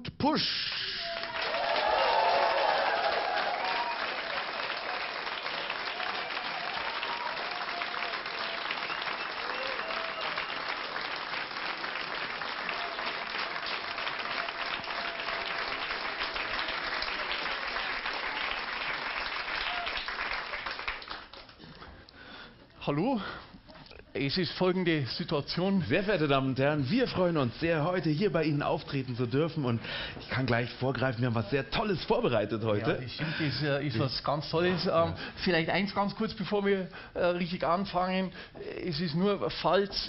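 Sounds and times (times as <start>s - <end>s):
audience applauding: 0.8s - 21.6s
voices cheering: 1.0s - 20.2s.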